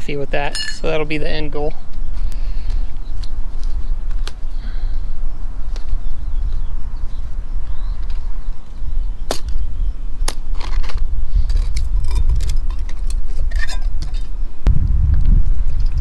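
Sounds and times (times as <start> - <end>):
wind rumble on microphone: 0.0 - 16.0
metal cook gear clinking: 0.4 - 0.9.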